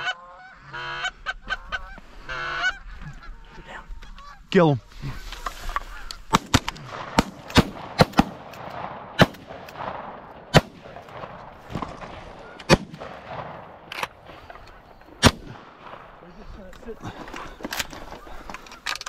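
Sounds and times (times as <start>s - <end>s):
shotgun shots: 6.3s - 14.6s, 15.2s - 16.2s.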